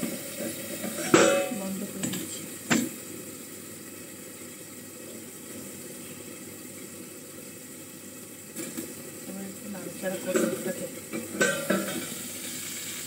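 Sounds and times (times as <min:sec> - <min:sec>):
kitchen utensil clank: 0:00.8 - 0:02.9, 0:11.2 - 0:12.1.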